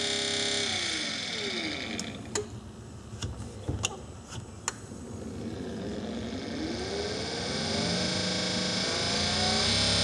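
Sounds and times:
electric motor humming: 0.0s - 2.3s, 5.4s - 10.0s.

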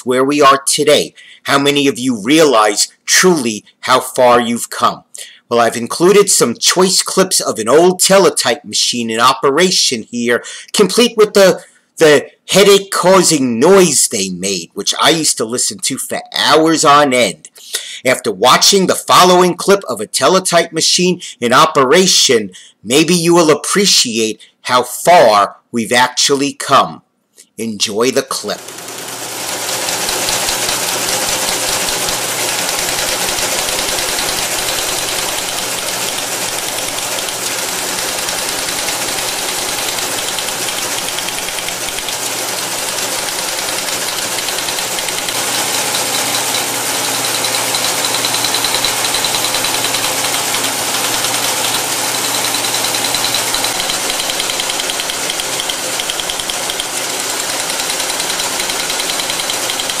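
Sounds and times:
teletype machine clattering: 28.5s - 60.0s.

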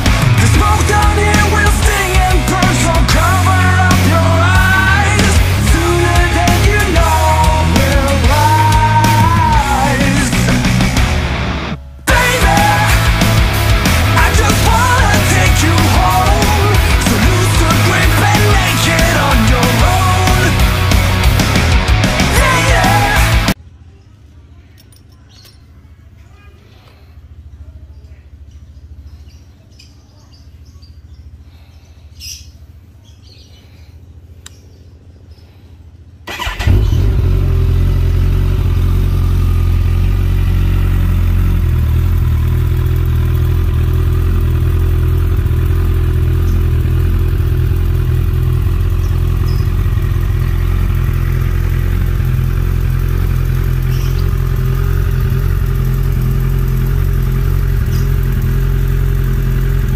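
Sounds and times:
motorcycle engine starting and idling: 0.0s - 23.6s, 36.0s - 59.9s.

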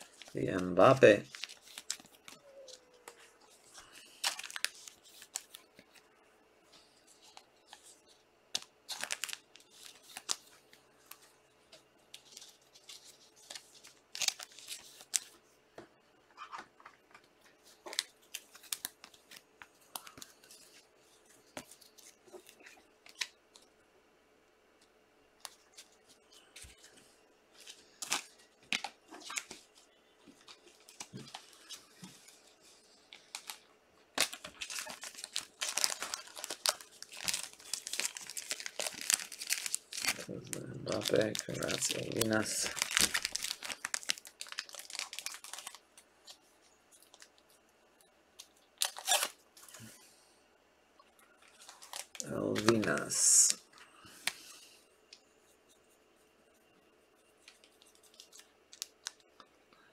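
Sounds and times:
foil wrapper crinkling: 0.0s - 5.9s, 8.6s - 11.2s, 12.2s - 15.4s, 17.7s - 20.8s, 30.4s - 47.6s, 48.4s - 49.9s, 51.4s - 53.6s, 57.4s - 59.4s
foil pack torn open: 34.2s - 40.3s, 40.9s - 45.8s, 48.8s - 49.4s
cards being handled: 51.5s - 53.6s.

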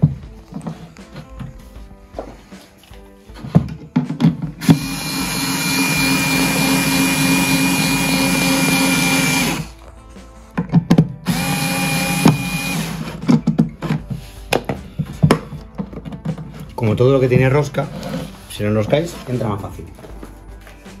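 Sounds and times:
cordless drill driving screw: 4.6s - 9.7s, 11.3s - 13.4s.

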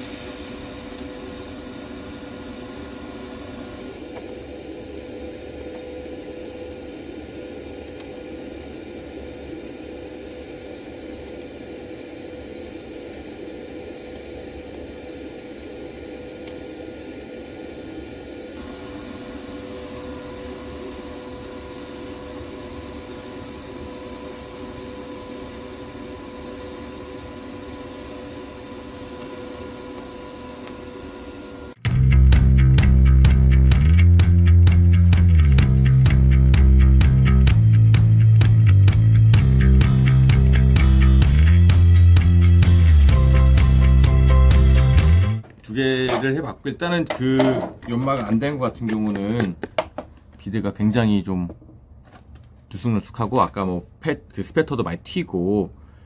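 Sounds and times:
welding arc hissing and humming: 0.0s - 31.8s, 34.8s - 36.4s, 39.4s - 45.2s.

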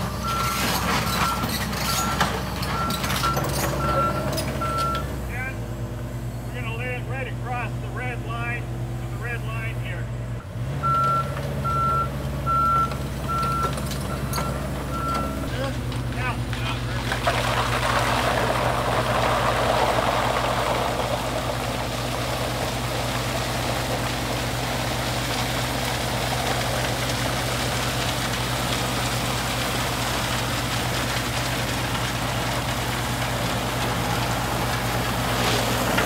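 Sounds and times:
excavator diesel engine running: 0.0s - 36.0s
water splashing and pouring: 15.7s - 36.0s.

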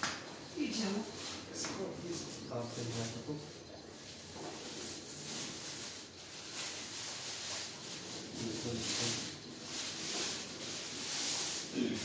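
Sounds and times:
plastic wrapping crinkling: 2.4s - 11.7s.

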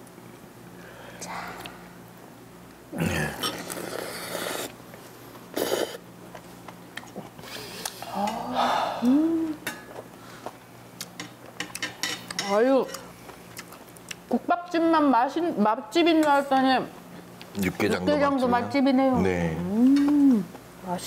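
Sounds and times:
person slurping soup: 3.4s - 4.8s, 5.6s - 6.0s
person humming in appreciation: 8.0s - 9.6s, 19.6s - 20.5s.

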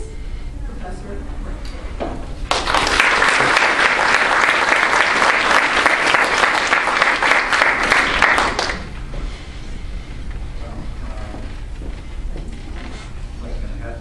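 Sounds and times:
audience applauding: 2.4s - 9.0s.

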